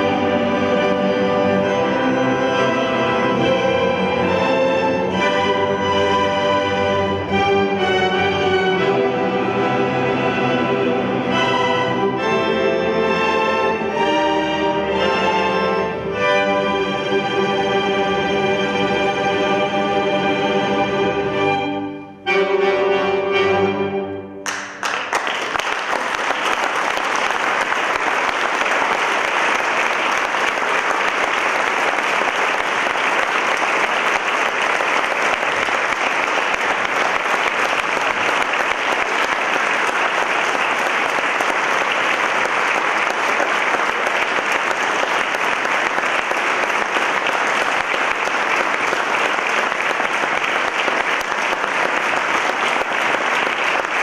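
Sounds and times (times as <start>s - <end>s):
string orchestra with accordion: 0.0s - 24.4s
audience applause: 24.4s - 54.0s.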